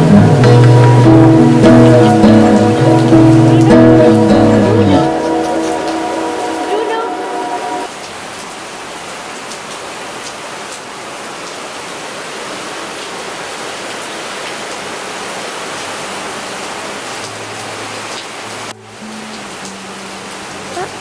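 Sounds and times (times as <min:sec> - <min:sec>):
heavy rain falling: 0:00.0 - 0:21.0.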